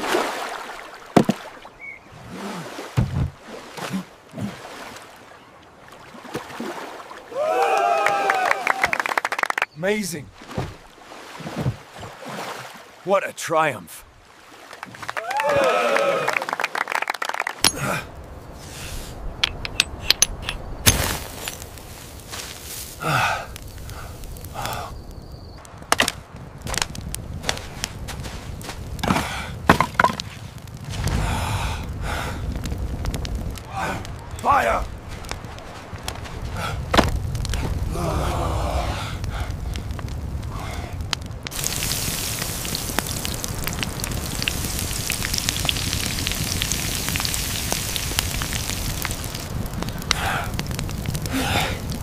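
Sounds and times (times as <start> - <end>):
campfire crackling: 3.4 - 12.0, 14.0 - 52.0
rushing fire: 6.6 - 9.2, 17.5 - 52.0
burning sticks popping: 17.6 - 52.0.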